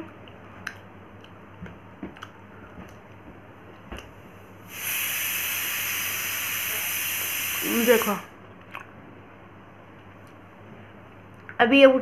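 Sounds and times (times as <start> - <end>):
chewing apple clicks: 0.0 - 3.2, 8.6 - 9.0
loud steady hiss: 4.6 - 8.3.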